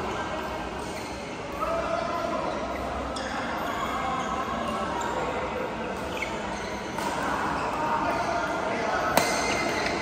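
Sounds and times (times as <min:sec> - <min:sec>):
badminton play: 0:04.6 - 0:10.0
racket hitting shuttlecock: 0:09.1 - 0:10.0.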